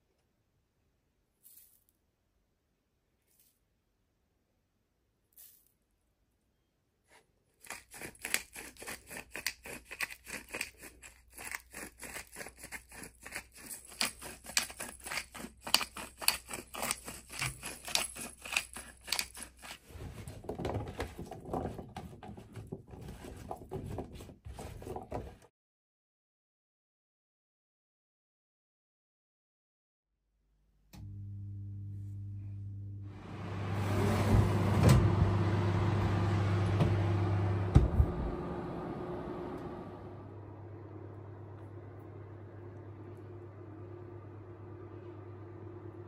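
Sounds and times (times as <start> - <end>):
seasoning mill grinding: 7.6 - 20.4.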